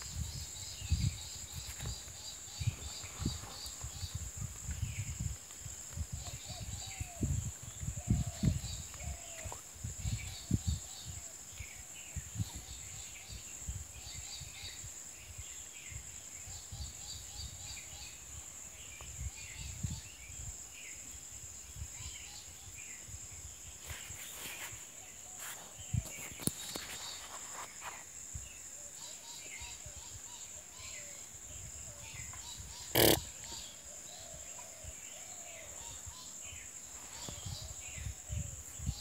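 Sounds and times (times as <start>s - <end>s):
small birds chirping: 22.0s - 39.0s
high-pitched insect drone: 32.9s - 33.6s.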